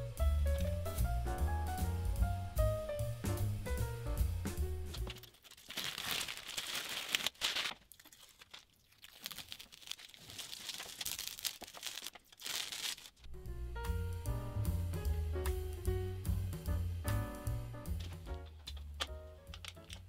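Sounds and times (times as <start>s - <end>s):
masking tape peeling: 5.0s - 13.3s.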